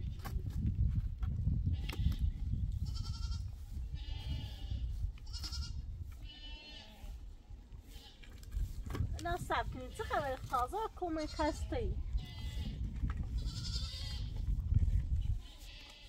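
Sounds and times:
goats bleating: 0:02.8 - 0:07.2, 0:11.0 - 0:14.4, 0:15.4 - 0:16.0.

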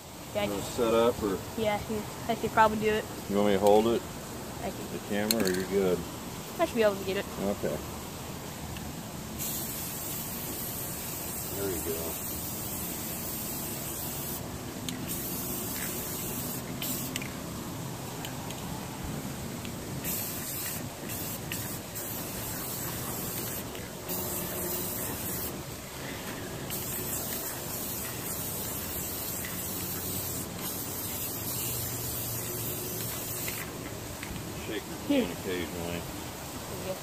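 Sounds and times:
aerosol spray can spraying: 0:09.4 - 0:17.4, 0:20.0 - 0:25.6, 0:26.6 - 0:33.8.

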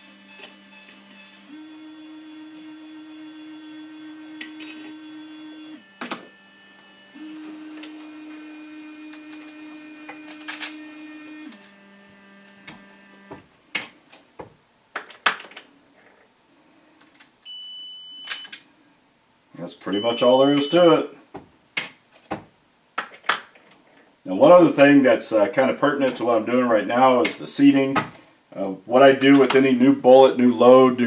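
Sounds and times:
powder dispenser motors humming: 0:00.0 - 0:13.9
dispenser beeping: 0:19.8 - 0:21.1.

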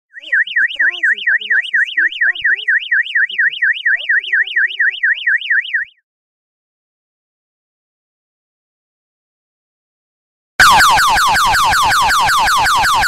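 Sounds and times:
electronic siren warbling: 0:00.2 - 0:06.0, 0:10.6 - 0:13.0.

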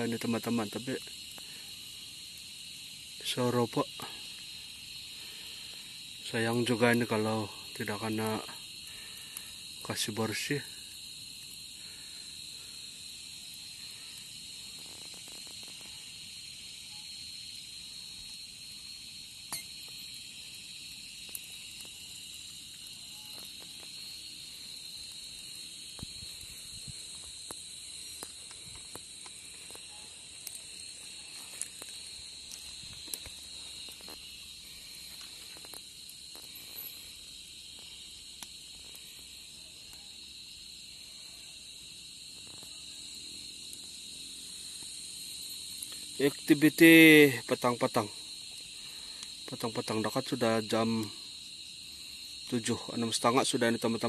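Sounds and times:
insects shrilling: 0:00.0 - 0:54.0.

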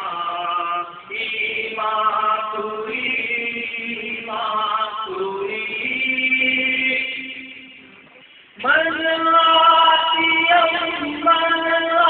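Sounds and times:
person chanting: 0:08.6 - 0:12.0.

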